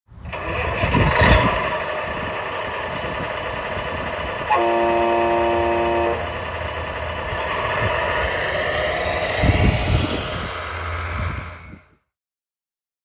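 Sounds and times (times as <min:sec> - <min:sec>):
simulated diesel engine idling: 0:00.1 - 0:11.8
truck horn tone: 0:04.5 - 0:06.5.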